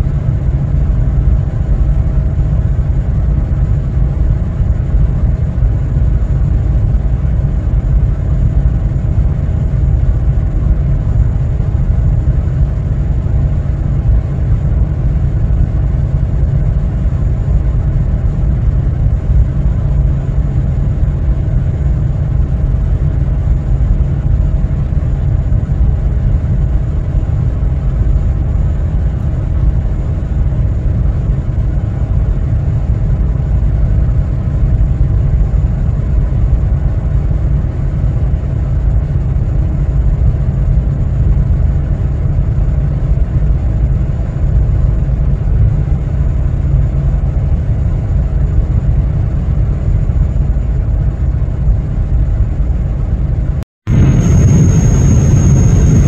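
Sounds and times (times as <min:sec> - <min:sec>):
ship engines rumbling: 0:53.9 - 0:56.0.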